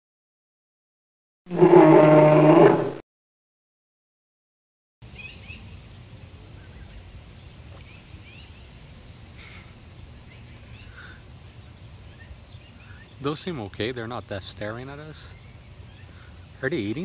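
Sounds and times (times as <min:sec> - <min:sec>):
low outdoor rumble: 0:05.0 - 0:17.0.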